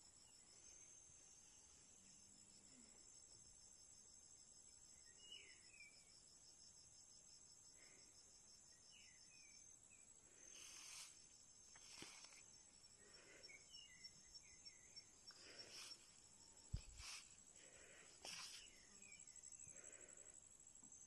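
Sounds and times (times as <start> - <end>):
crickets trilling: 7.6 - 21.0.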